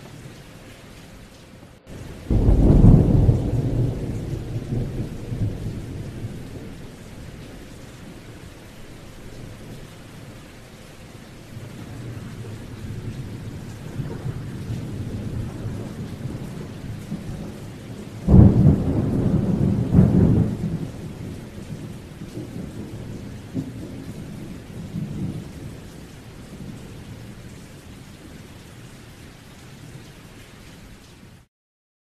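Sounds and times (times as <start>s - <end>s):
rain falling: 0.0s - 31.5s
thunder rumbling: 1.8s - 10.4s, 11.5s - 27.7s.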